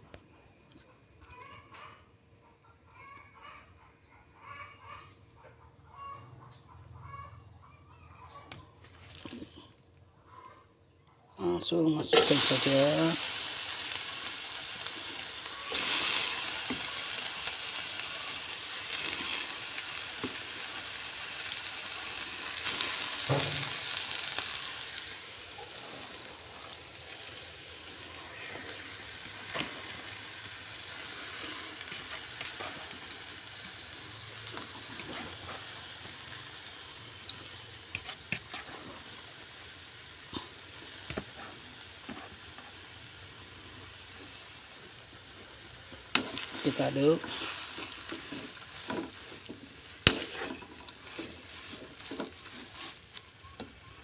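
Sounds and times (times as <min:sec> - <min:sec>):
shrimp sizzling in a wok: 0:08.0 - 0:09.8, 0:10.8 - 0:54.0.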